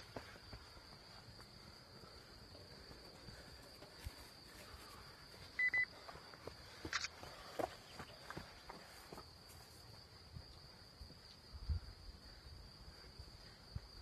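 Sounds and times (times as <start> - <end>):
insects chirring: 0.0 - 14.0
short high beeps: 5.6 - 5.9.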